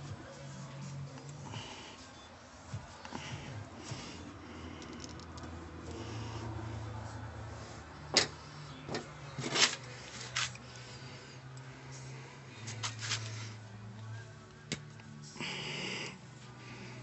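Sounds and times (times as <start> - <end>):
metal spring clicking and scraping: 8.1 - 10.6.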